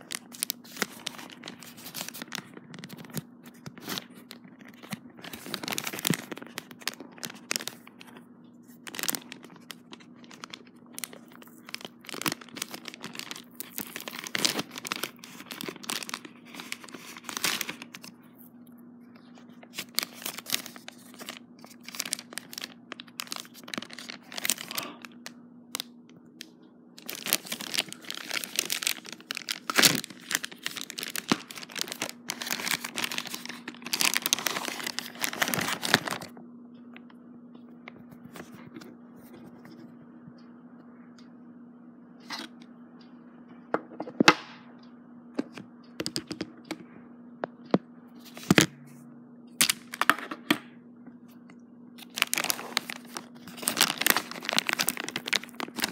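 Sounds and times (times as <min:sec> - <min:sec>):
envelope rustling: 0:00.0 - 0:18.2, 0:19.7 - 0:25.0, 0:27.0 - 0:36.3, 0:52.0 - 0:55.9
steady low hum: 0:00.0 - 0:55.9
shipping envelope tearing: 0:27.0 - 0:36.3, 0:52.0 - 0:55.9.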